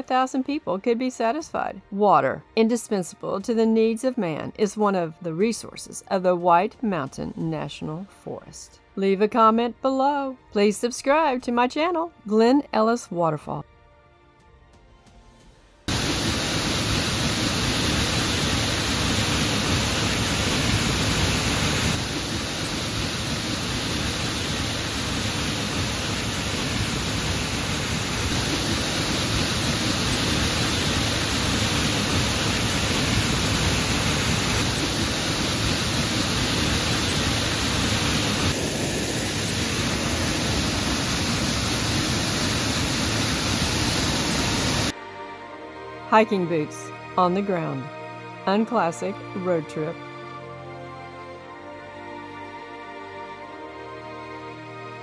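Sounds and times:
waterfall rushing: 15.9s - 44.9s.

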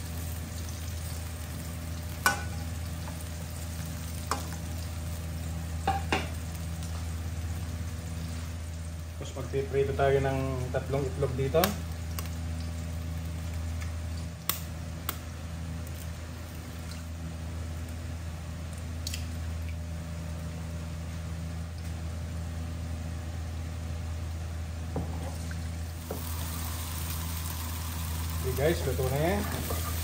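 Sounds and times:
eggs sizzling in hot oil: 0.0s - 9.1s, 25.8s - 30.0s
low steady hum: 0.0s - 30.0s.

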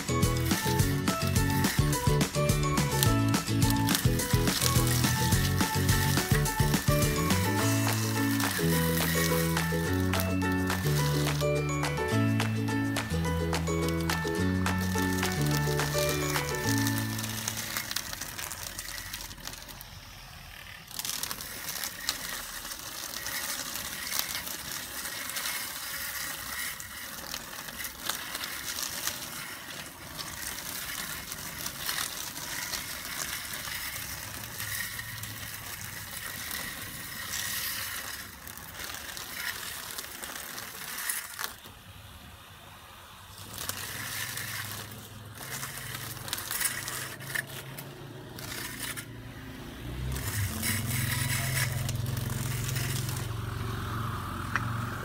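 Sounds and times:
grass trimmer chopping weeds: 0.0s - 19.9s, 43.3s - 55.0s.

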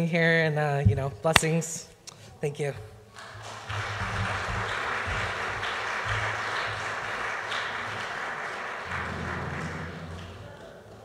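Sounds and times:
audience applauding: 3.1s - 11.0s.

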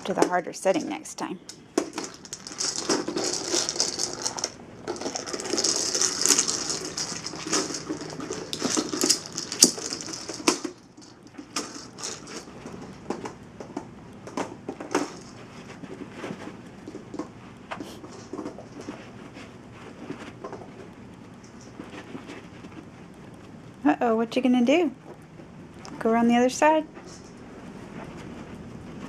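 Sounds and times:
kibble rattling in plastic ball: 0.0s - 17.4s, 18.0s - 19.4s, 26.6s - 27.4s.

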